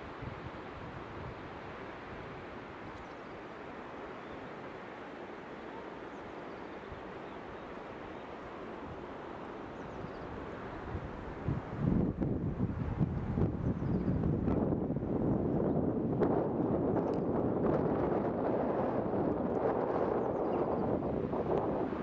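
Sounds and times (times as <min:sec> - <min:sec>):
wind buffeting microphone: 0:10.0 - 0:22.0.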